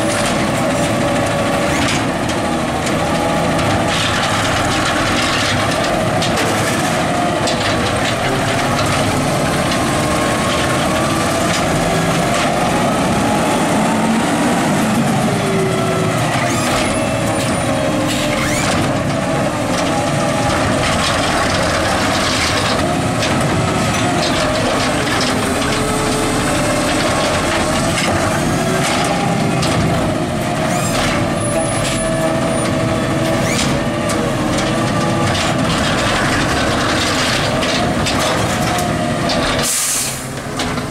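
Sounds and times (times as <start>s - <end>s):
garbage truck engine revving: 0.0s - 40.9s
plastic carts clanking: 0.0s - 40.9s
hydraulic arm whine: 8.4s - 35.6s.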